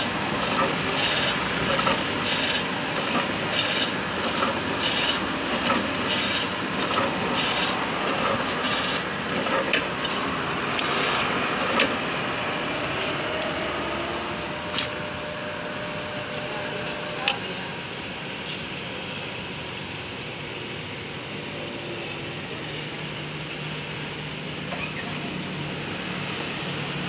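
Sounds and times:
meat slicer cutting strokes: 0.0 - 11.9
machine running noise: 0.0 - 27.0.

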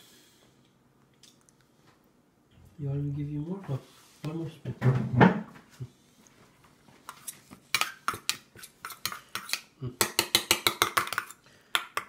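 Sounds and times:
spoon scraping steel bowl: 7.1 - 9.6.

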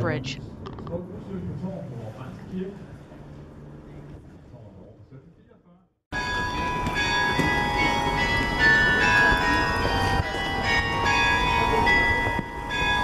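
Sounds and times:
low street rumble: 0.0 - 13.0
church bells ringing: 6.1 - 13.0.

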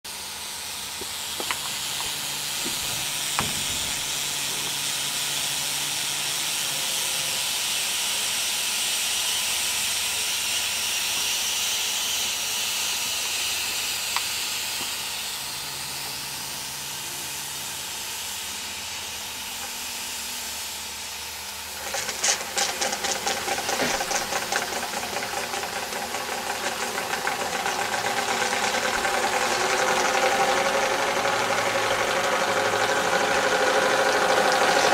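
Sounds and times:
steam engine chuffing: 0.1 - 34.9
steam hissing: 0.1 - 34.9.

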